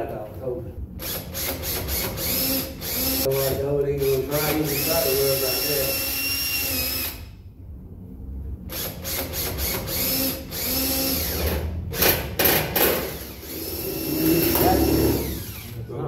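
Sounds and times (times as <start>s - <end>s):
cordless drill driving screws: 1.0s - 3.2s, 4.3s - 7.2s, 8.8s - 12.1s, 13.0s - 15.8s.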